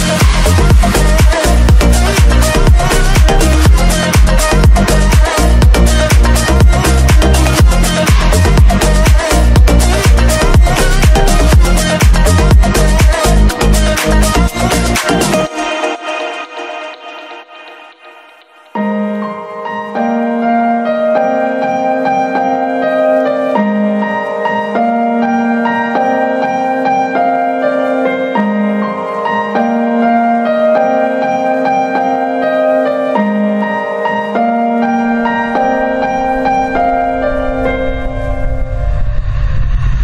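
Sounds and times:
deep low musical part: 0:00.0 - 0:15.4, 0:34.8 - 0:40.0
bass line: 0:00.0 - 0:15.5
melody of held notes: 0:00.0 - 0:39.2.

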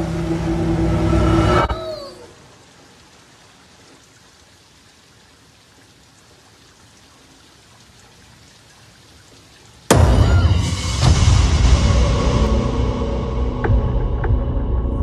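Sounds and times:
rain on a wet street: 0:01.8 - 0:11.8.

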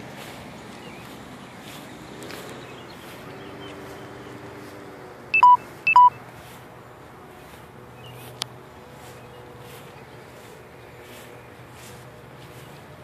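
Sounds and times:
low outdoor background: 0:00.0 - 0:13.0
short electronic beeps: 0:05.4 - 0:06.2.

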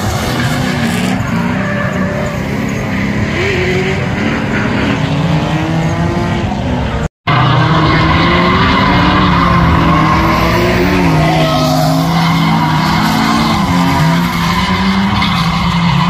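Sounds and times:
car engines revving: 0:00.0 - 0:16.0
tyres squealing: 0:07.3 - 0:16.0.

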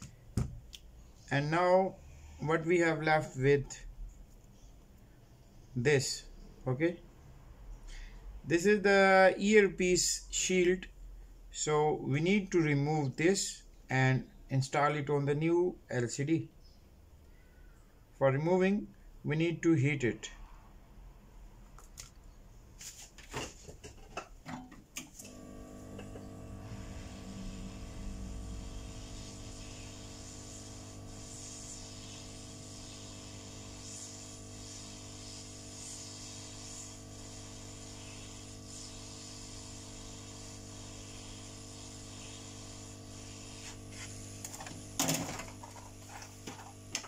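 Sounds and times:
heat gun blowing: 0:25.0 - 0:47.0.

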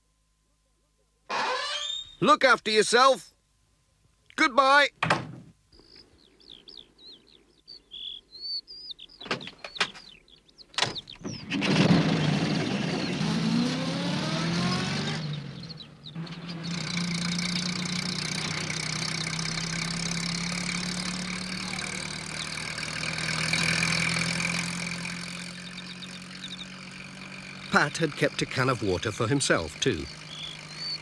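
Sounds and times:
van engine starting and revving: 0:10.8 - 0:31.0.

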